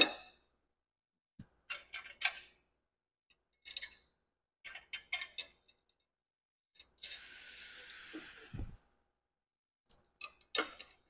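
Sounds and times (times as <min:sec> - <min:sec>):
metal bolts and nuts clinking: 0:01.6 - 0:02.6, 0:03.3 - 0:06.1.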